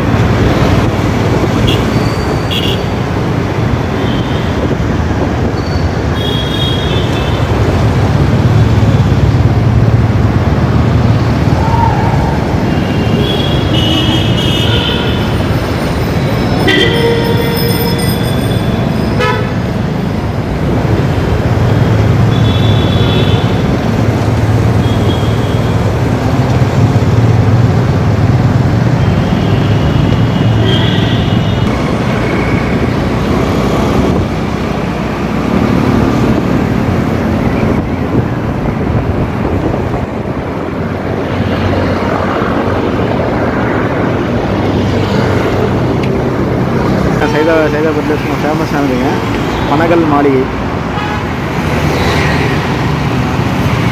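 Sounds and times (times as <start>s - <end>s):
traffic engines and road noise: 0.0s - 53.9s
vehicle horn toots: 1.6s - 2.9s, 16.6s - 18.2s, 19.2s - 19.6s, 29.3s - 31.7s.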